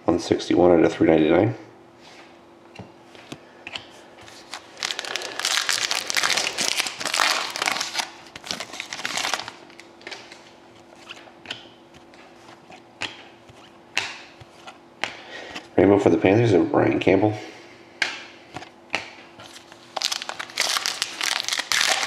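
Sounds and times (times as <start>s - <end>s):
foil pack tearing and crinkling: 4.3s - 9.9s, 19.5s - 22.0s.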